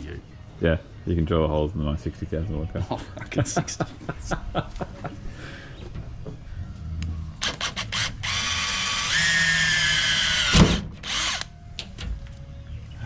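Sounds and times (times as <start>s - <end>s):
cordless drill whining: 7.4s - 11.5s.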